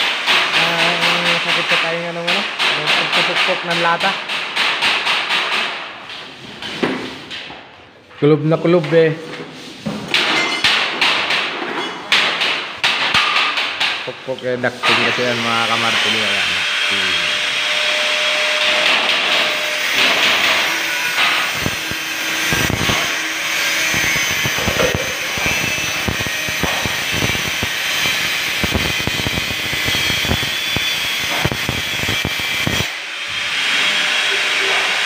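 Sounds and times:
angle grinder cutting metal: 14.8 - 35.0.

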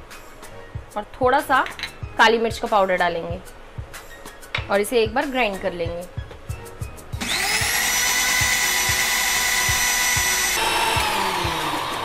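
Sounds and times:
blender motor whine: 7.2 - 12.0.

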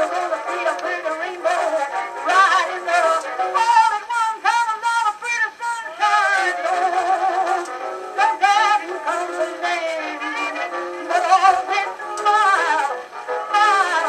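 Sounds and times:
person singing with vibrato: 0.0 - 14.0.

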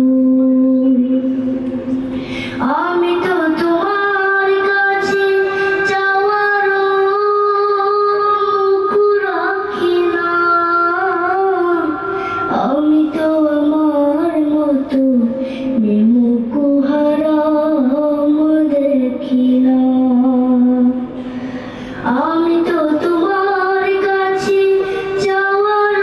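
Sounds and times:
boy singing into a microphone: 0.0 - 26.0.

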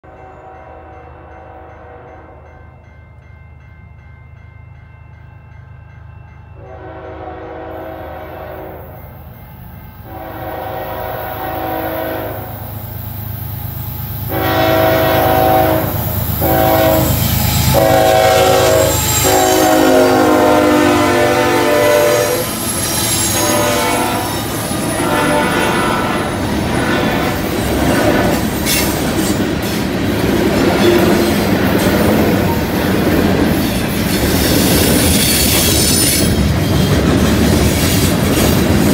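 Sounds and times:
locomotive air horn blasts: 6.6 - 9.2, 10.0 - 12.8, 14.3 - 27.4
wheel squeal: 22.4 - 25.0
train wheel clatter: 22.4 - 38.9.

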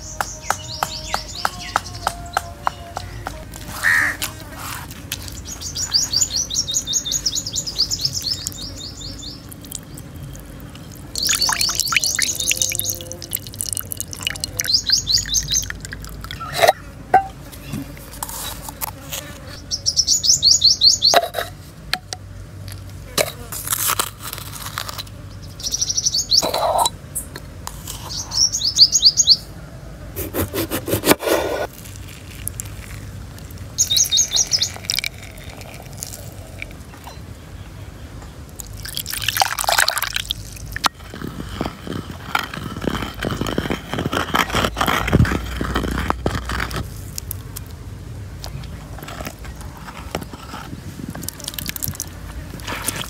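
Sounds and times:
small birds trilling: 0.0 - 4.2, 5.1 - 17.0, 19.4 - 21.3, 25.2 - 27.3, 27.9 - 29.5, 33.8 - 40.2.

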